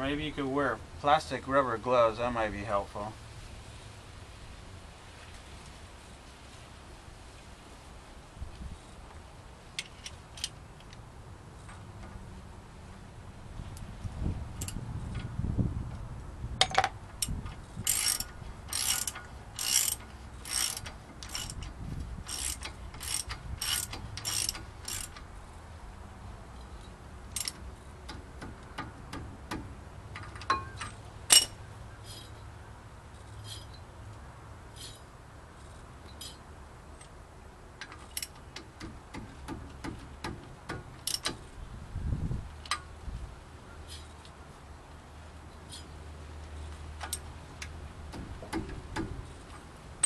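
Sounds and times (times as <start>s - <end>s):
socket ratchet clicking: 17.2s - 25.3s, 27.3s - 28.2s.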